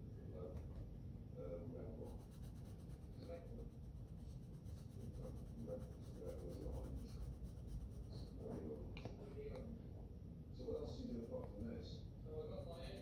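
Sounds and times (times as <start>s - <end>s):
pencil scratching on paper: 2.0s - 8.8s.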